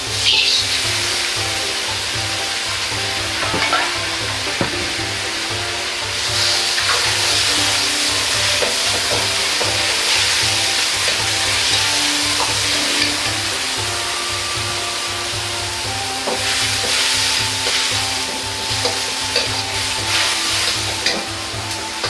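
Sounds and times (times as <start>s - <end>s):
food sizzling in a wok: 0.0s - 22.0s
ladle knocking against wok: 0.3s - 13.8s.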